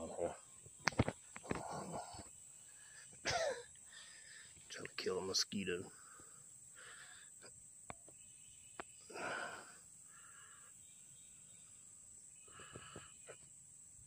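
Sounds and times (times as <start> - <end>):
breathy exhale: 5.9 - 7.4, 9.1 - 10.8.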